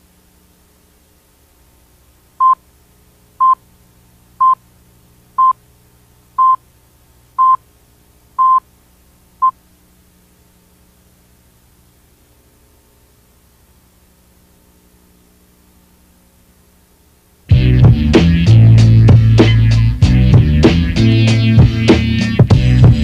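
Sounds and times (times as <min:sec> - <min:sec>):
faint low hum: 0:00.0 - 0:20.5
short electronic beeps: 0:06.4 - 0:06.6, 0:07.4 - 0:07.6, 0:08.4 - 0:08.6.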